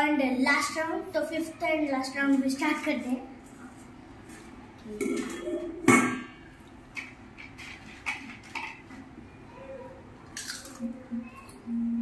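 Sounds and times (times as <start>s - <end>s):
crisps crunching: 10.3s - 10.8s.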